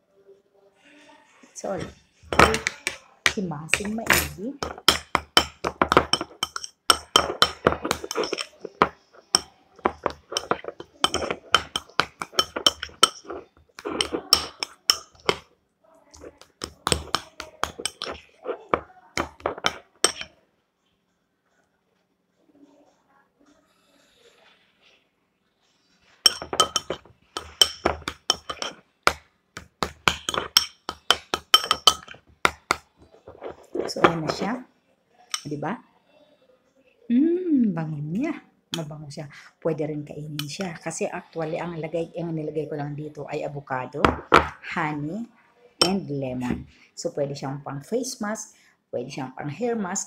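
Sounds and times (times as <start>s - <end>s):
spoon clinking against a bowl: 1.8s - 15.5s, 16.1s - 20.4s, 26.2s - 34.6s, 35.3s - 35.5s, 45.8s - 46.1s.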